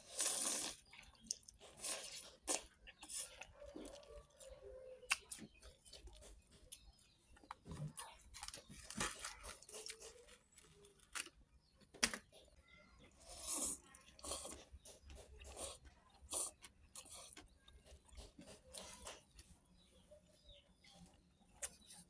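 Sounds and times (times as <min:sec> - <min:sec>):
slurping noodles: 0:00.0 - 0:04.0, 0:13.1 - 0:19.3
wet chewing and lip smacks: 0:00.1 - 0:08.6.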